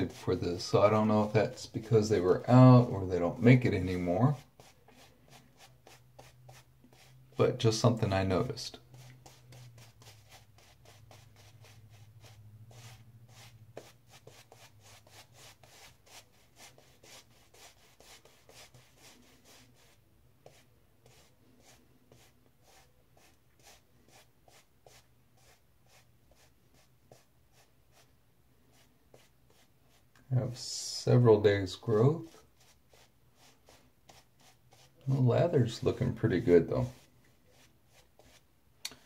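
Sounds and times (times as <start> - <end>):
shaving brush scratching on face: 0.0 - 28.1.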